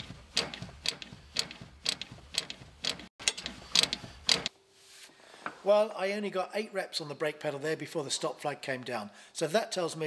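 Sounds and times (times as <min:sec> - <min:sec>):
brake pedal clicking: 0:00.0 - 0:04.5.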